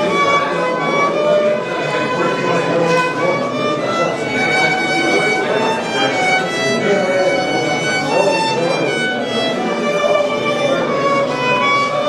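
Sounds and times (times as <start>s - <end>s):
violin playing held notes: 0.0s - 12.0s.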